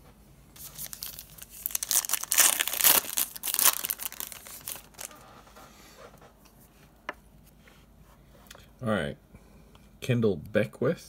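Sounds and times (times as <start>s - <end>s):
wrapper tearing and crinkling: 0.6s - 5.2s.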